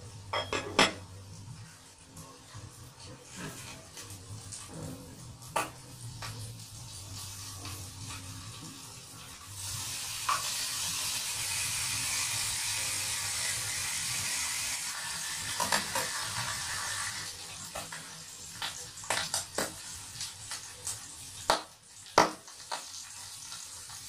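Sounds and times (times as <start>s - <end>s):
pork sizzling in a pan: 0.0s - 24.0s.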